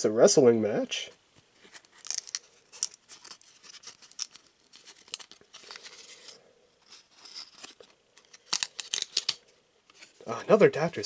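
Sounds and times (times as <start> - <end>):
trading cards sliding and peeling: 1.6 - 10.2.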